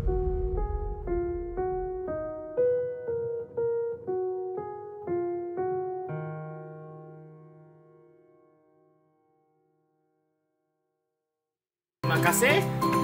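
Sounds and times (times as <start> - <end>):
keyboard melody: 0.0 - 8.9.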